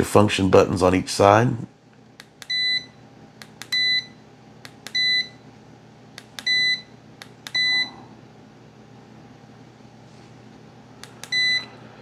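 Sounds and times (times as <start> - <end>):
multimeter beeping: 2.4 - 3.0, 3.6 - 4.2, 4.8 - 5.4, 6.4 - 7.9, 11.2 - 11.8.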